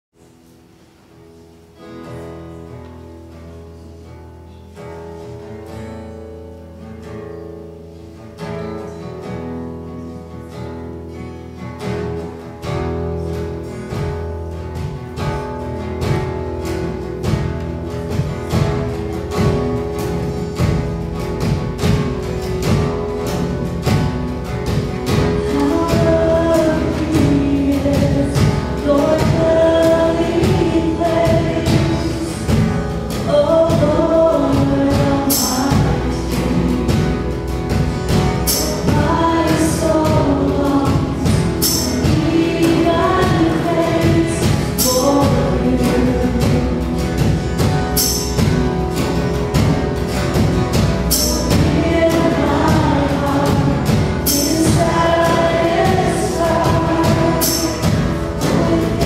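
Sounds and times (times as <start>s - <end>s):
worship band playing: 8.8s - 59.0s
drum kit: 11.9s - 59.0s.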